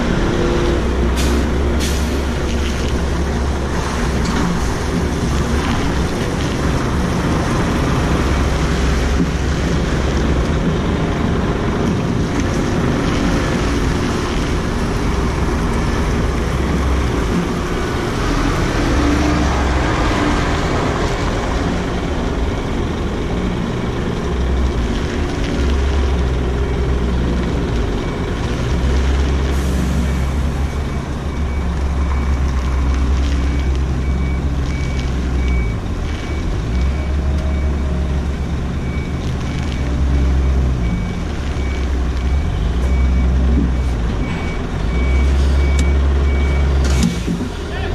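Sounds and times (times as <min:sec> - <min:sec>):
diesel truck engine running: 0:00.0 - 0:47.9
reversing alarm beeping: 0:28.0 - 0:47.2.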